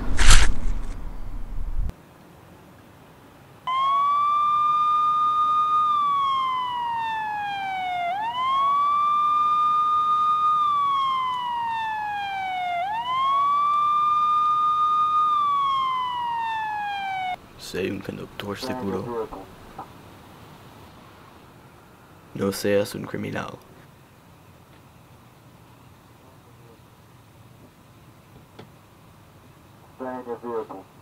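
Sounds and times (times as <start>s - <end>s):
police siren wailing: 3.7s - 17.4s.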